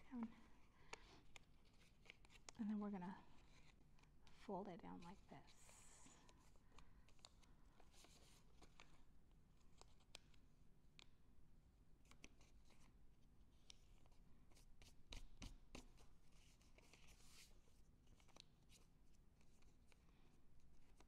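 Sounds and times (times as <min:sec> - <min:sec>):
paper crinkling and creasing: 0:01.0 - 0:04.5.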